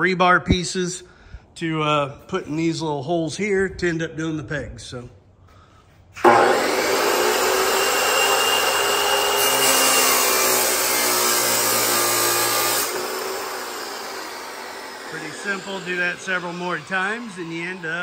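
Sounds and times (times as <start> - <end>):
chop saw cutting steel: 6.2 - 18.0.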